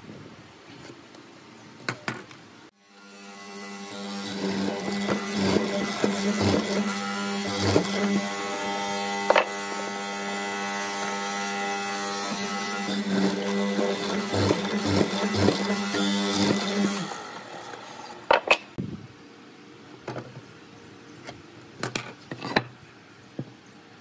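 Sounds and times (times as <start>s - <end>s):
electric motor hum: 2.8s - 18.8s.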